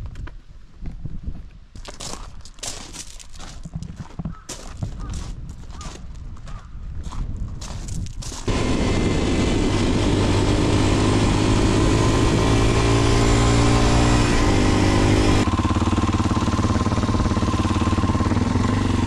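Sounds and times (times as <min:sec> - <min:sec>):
wind rush on microphone: 0:00.0 - 0:01.8, 0:03.8 - 0:15.5
motorcycle engine: 0:08.5 - 0:19.0.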